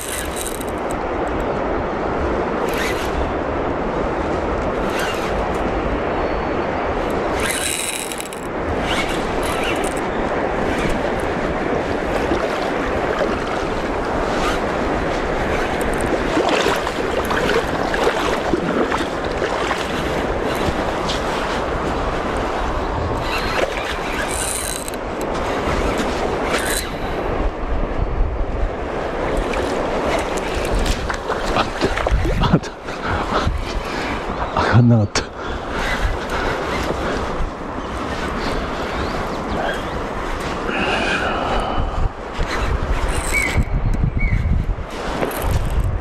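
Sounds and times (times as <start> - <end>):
fishing reel clicks and rustles: 0.0 - 1.5, 7.0 - 11.4, 14.0 - 22.5, 23.1 - 27.4, 42.4 - 43.7, 45.0 - 46.0
water at the bank: 0.0 - 46.0
wind on microphone: 0.0 - 46.0.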